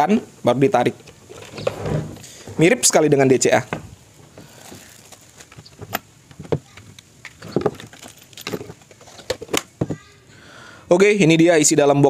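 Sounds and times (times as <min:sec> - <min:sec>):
plastic bags rustling: 0:01.2 - 0:06.7, 0:07.4 - 0:09.5
plastic parts clicking and knocking: 0:04.6 - 0:10.0.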